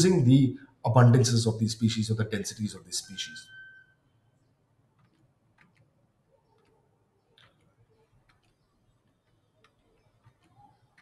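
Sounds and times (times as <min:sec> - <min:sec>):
faint irregular clicks: 0:04.4 - 0:11.0.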